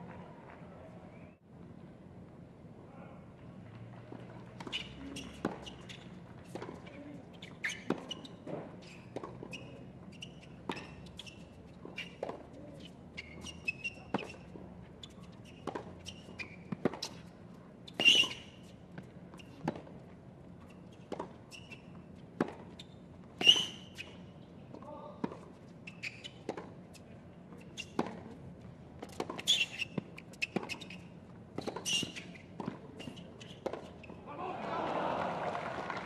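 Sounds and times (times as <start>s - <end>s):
tennis ball bouncing on court: 4.1s - 28.4s, 29.0s - 34.1s
tennis ball struck by rackets: 15.6s - 17.3s, 29.0s - 31.0s, 33.6s - 33.9s.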